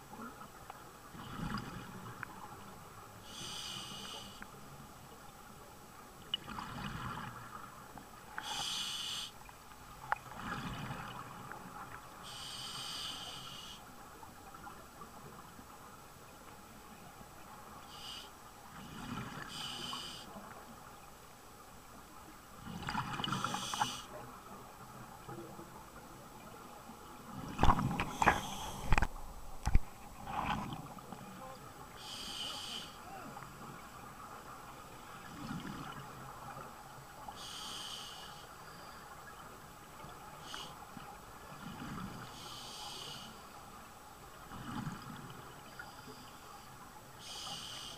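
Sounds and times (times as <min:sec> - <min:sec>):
hissing inhalation through regulator: 0:03.3 - 0:04.4, 0:08.4 - 0:09.4, 0:12.2 - 0:13.8, 0:23.3 - 0:24.1, 0:28.0 - 0:29.0, 0:32.0 - 0:33.0, 0:37.4 - 0:38.9, 0:40.4 - 0:40.8, 0:42.3 - 0:43.4, 0:47.2 - 0:47.9.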